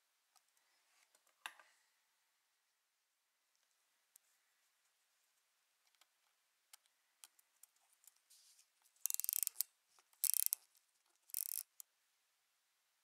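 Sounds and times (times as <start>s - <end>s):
watch winding ratchet clicking: 9.0s - 9.6s, 10.2s - 10.6s, 11.3s - 11.8s.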